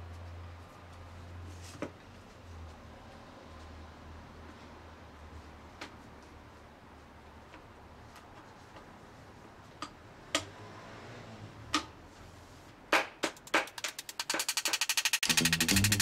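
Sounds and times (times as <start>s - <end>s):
clicks and knocks of sheet metal: 12.9s - 16.0s.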